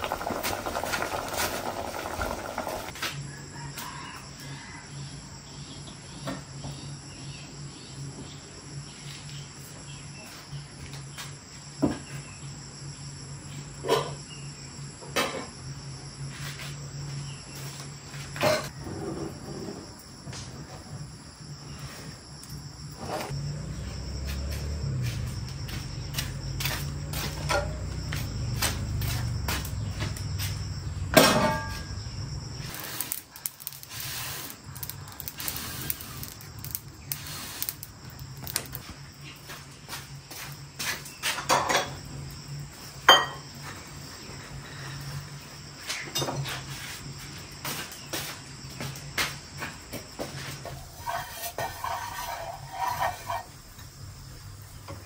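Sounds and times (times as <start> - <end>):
insects chirring: 0.0 - 55.0
metal cookware clanking: 31.2 - 31.9, 50.7 - 53.6.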